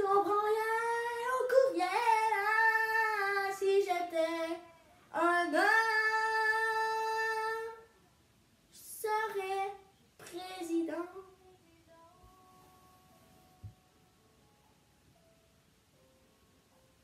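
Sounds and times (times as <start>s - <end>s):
child singing: 0.0s - 7.9s, 8.8s - 13.1s.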